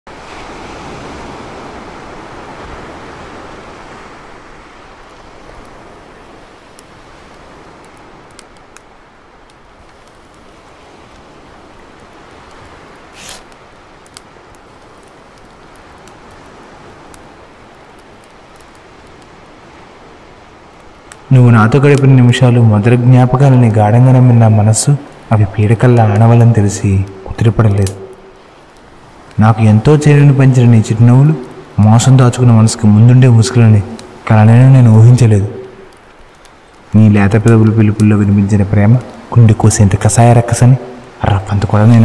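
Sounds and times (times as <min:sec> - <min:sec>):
faint clicks and crackles: 0:04.9 - 0:42.0
short hiss: 0:13.1 - 0:13.5.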